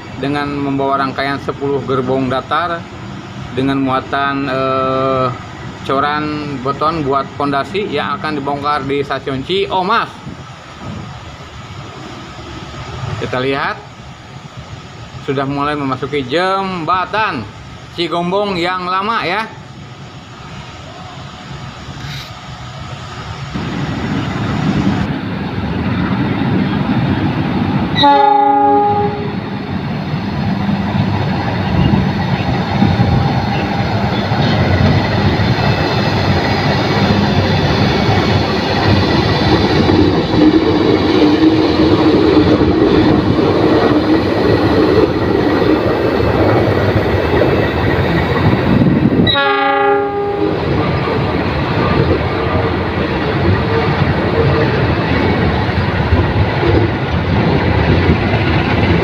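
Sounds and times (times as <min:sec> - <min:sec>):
train wheels rumbling on rails: 0:00.0 - 0:59.0
locomotive engine running: 0:23.6 - 0:49.0
train horn blasts: 0:28.0 - 0:29.4, 0:49.2 - 0:50.6.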